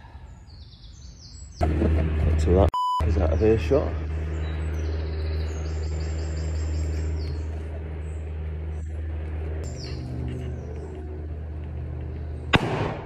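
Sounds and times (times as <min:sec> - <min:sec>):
birds chirping: 0:00.0 - 0:01.8, 0:02.4 - 0:12.9
propeller aircraft engine droning: 0:01.6 - 0:13.0.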